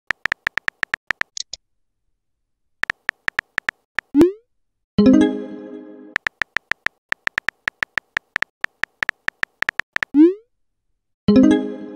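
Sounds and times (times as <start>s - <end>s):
keyboard tap clicks: 0.1s - 1.5s, 2.8s - 4.2s, 6.2s - 10.2s.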